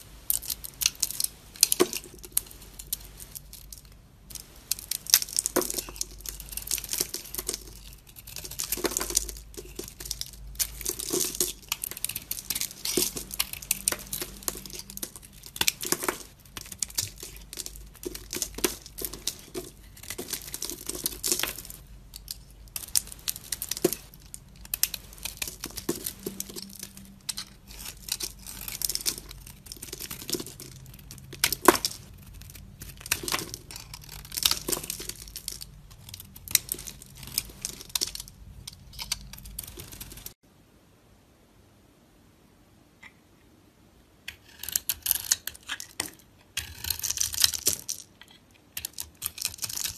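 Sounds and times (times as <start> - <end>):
soap chips crackling: 0.3 - 40.4, 44.4 - 49.9
knife blade scraping soap: 46.6 - 47.4.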